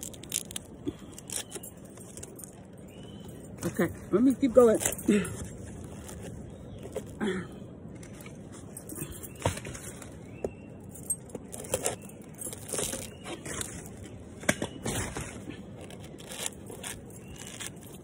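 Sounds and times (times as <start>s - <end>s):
coconut husk tearing: 0.0s - 2.4s, 11.5s - 18.0s.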